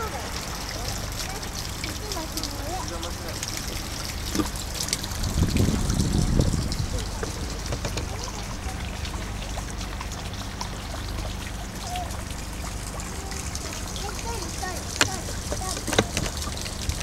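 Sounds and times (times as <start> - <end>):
faint indistinct voices: 0.0 - 4.6, 5.8 - 10.0
steady low rumble: 0.0 - 17.0
small ticks and rustles: 1.2 - 17.0.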